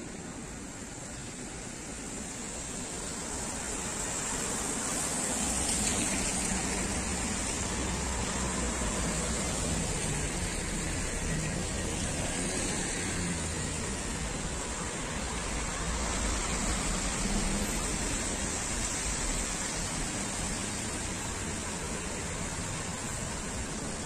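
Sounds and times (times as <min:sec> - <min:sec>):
cars passing: 0:00.0 - 0:24.0
tyres hissing on wet road: 0:00.0 - 0:24.0.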